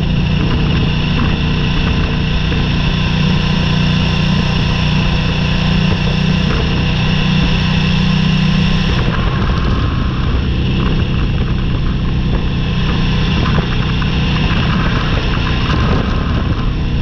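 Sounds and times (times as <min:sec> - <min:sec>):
motorcycle engine running: 0:00.0 - 0:17.0
gravel clicks: 0:08.7 - 0:17.0.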